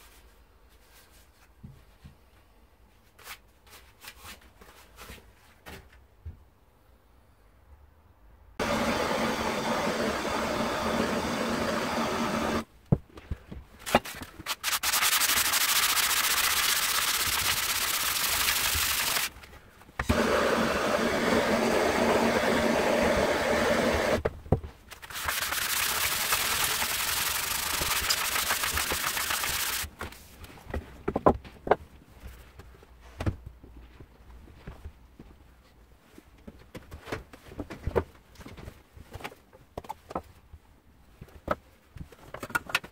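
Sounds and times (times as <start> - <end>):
blowtorch hissing: 8.6 - 12.6, 20.1 - 24.2.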